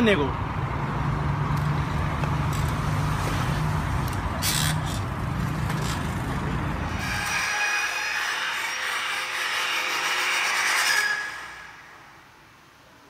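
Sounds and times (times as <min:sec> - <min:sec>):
vehicle engine humming: 0:00.0 - 0:07.0
road noise: 0:00.0 - 0:13.0.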